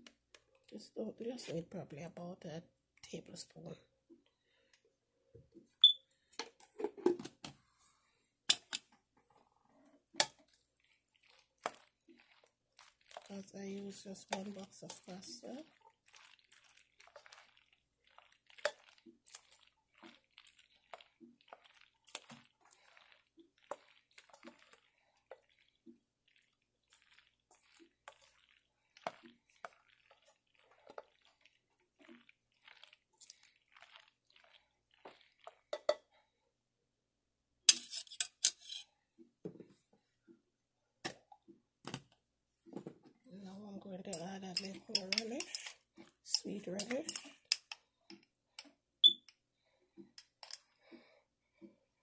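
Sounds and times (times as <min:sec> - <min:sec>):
spoon stirring in a metal pot: 0:08.5 - 0:36.2, 0:37.7 - 0:39.0, 0:43.4 - 0:49.4.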